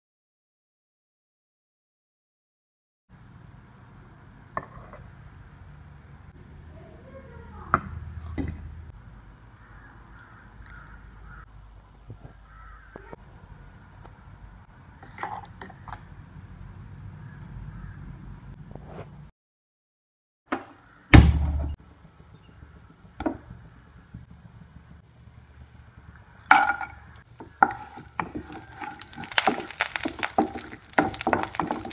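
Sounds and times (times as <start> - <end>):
crows cawing: 9.5 - 11.6, 12.2 - 13.2, 17.2 - 18.1, 20.7 - 21.1, 26.4 - 31.9.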